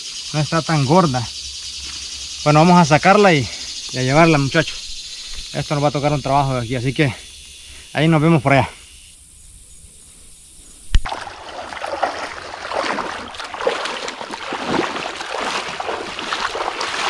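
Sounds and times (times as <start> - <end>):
person wading through water: 11.0 - 17.0.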